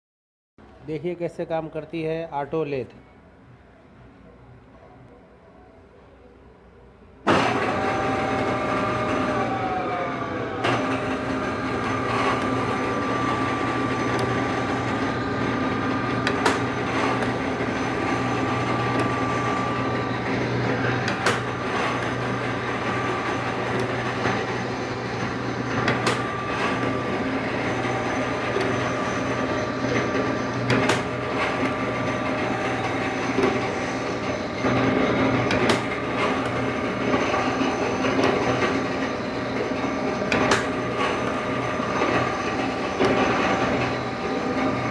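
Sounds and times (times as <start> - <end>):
lathe machine hum and whine: 7.2 - 44.9
sharp machine clack: 10.6 - 44.9.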